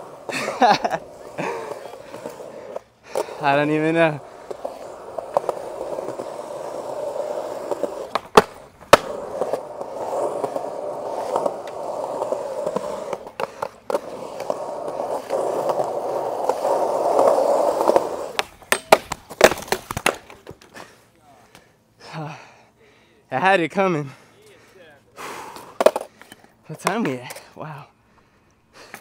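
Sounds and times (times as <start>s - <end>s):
skateboard clacks: 0.0s - 20.8s, 25.6s - 27.4s
skateboard clattering and skidding: 0.0s - 20.8s, 25.8s - 27.4s
skateboard wheels rolling on concrete: 0.0s - 22.7s, 23.3s - 29.0s.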